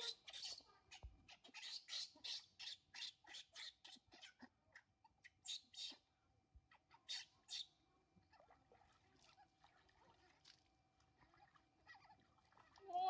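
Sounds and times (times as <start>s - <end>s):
baby monkeys squealing: 0.0s - 6.0s, 6.7s - 8.6s, 11.2s - 13.0s.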